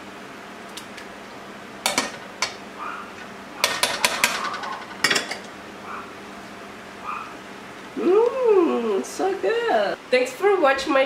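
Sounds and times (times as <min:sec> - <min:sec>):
utensils clinking on metal pot: 0:01.9 - 0:02.6, 0:03.6 - 0:05.5.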